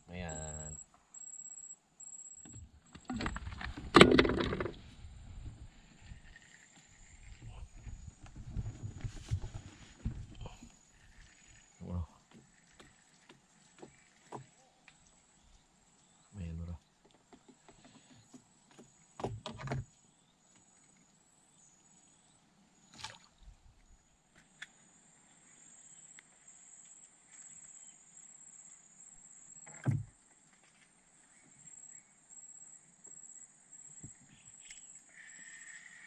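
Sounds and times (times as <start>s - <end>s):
insects buzzing: 24.5s - 36.0s
knocks against wooden boat hull: 29.7s - 30.1s.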